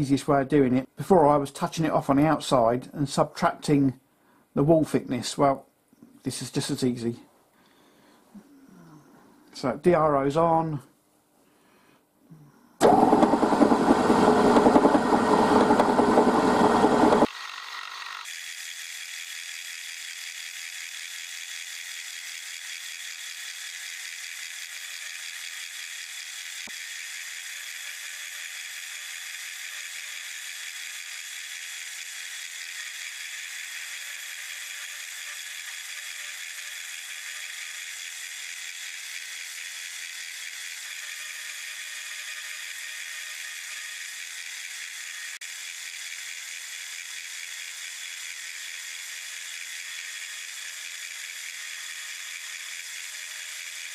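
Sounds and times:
loud dense cutting noise: 12.8 - 18.2
milling machine spindle running: 12.8 - 27.0.

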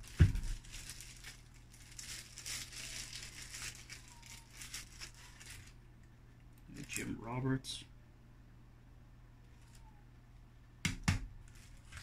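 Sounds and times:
plastic bag crinkling: 0.0 - 5.8, 11.4 - 12.0.

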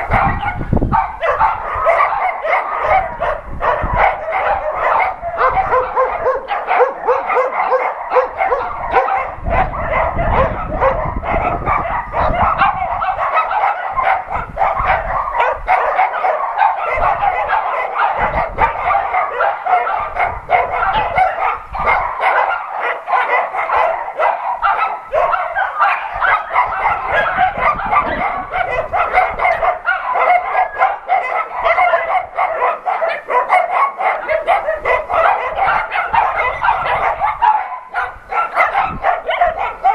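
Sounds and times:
dogs and puppies barking: 0.0 - 39.9.

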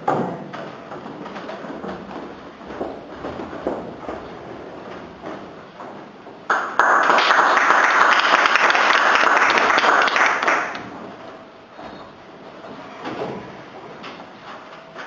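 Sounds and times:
audience applauding: 6.5 - 10.9.

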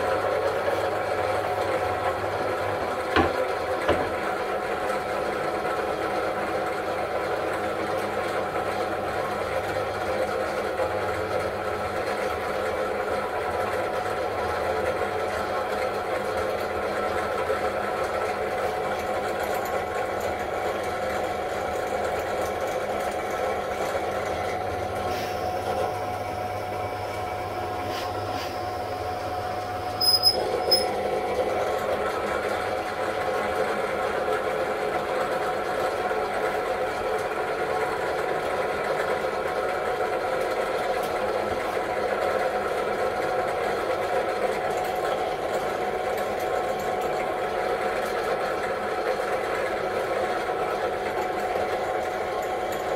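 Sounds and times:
drill press motor humming: 0.0 - 52.9.

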